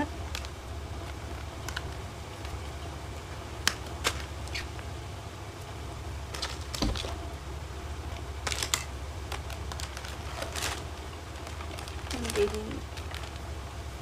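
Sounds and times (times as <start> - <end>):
plastic packet crinkling: 8.4 - 13.6.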